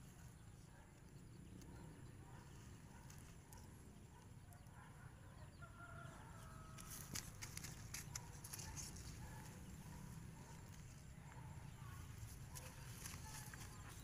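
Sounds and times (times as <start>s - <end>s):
footsteps crunching dry grass: 12.0s - 14.0s.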